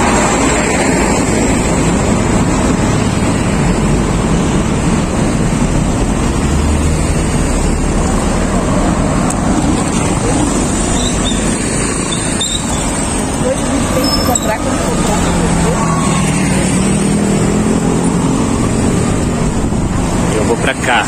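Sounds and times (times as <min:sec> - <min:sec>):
concrete mixer truck passing: 0:00.0 - 0:21.0
street traffic: 0:00.0 - 0:21.0
wind buffeting microphone: 0:16.2 - 0:20.5.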